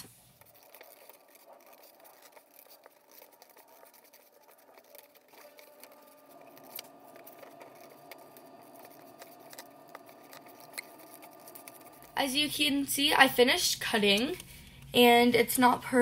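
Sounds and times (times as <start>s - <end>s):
scissors snipping paper: 0.0s - 12.2s.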